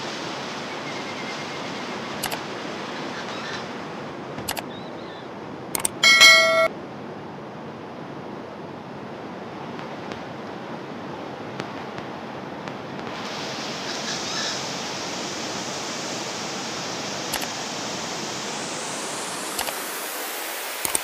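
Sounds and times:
brief clicks: 4.4s - 4.7s, 5.8s - 6.0s.

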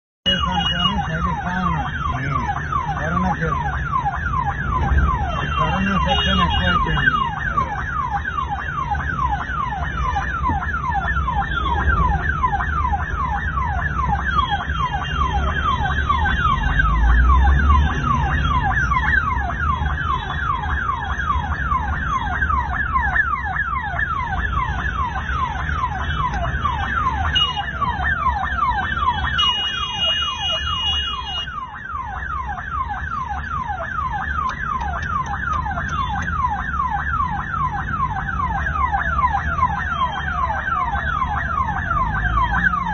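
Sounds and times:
ambulance siren sweeping: 0.2s - 42.9s
low engine and traffic rumble: 0.2s - 42.9s.

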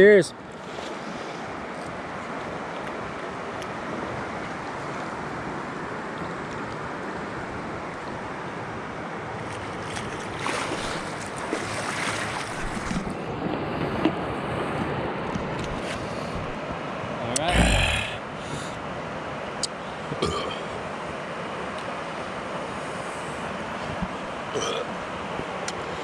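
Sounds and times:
river water rushing: 0.4s - 26.0s
water splashing and lapping: 9.3s - 16.6s.

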